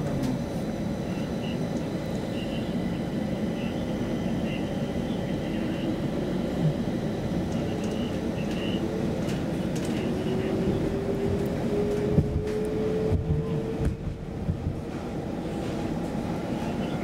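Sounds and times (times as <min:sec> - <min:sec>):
train wheels rumbling: 0:09.2 - 0:16.4.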